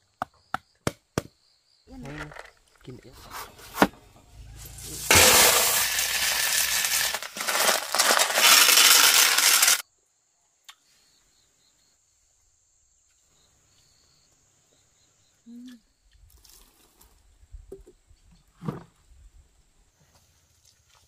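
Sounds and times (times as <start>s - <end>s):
loud rustling and crunching: 3.2s - 9.8s.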